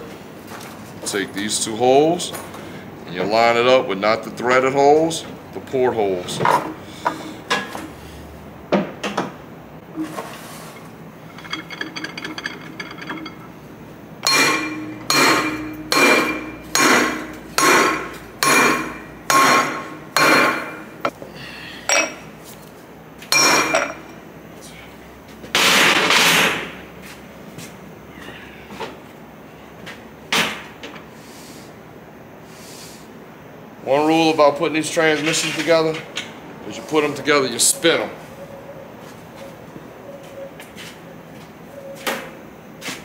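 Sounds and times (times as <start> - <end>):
metal clatter: 10.7 - 17.2
hammer striking steel tube: 14.2 - 20.8.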